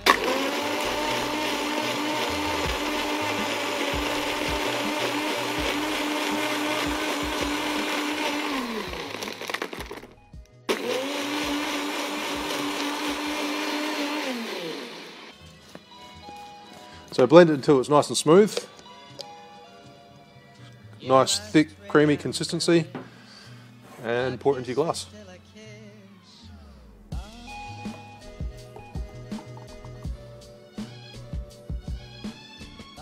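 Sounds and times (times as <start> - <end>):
blender blending ice: 0.0 - 15.4.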